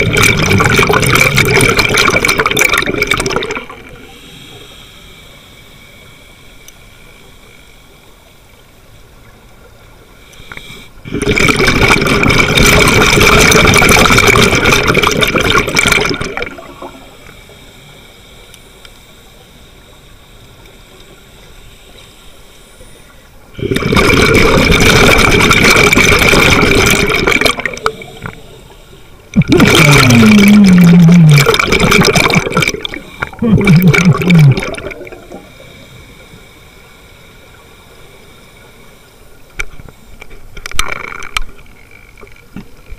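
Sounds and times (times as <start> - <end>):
underwater breath bubbles: 0.0 - 5.0, 10.3 - 17.8, 23.5 - 36.7.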